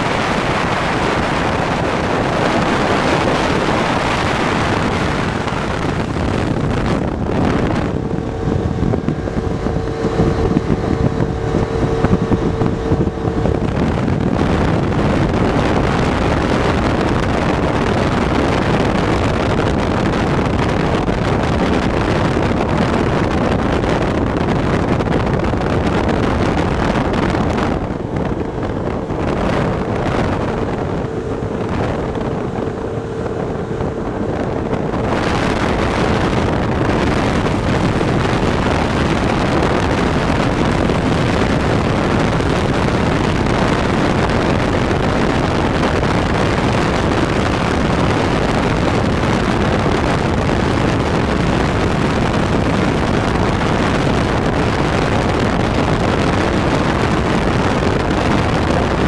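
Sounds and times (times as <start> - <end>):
boat engine hum: 0.0 - 59.0
water rushing past hull: 0.0 - 59.0
wind buffeting microphone: 0.0 - 59.0.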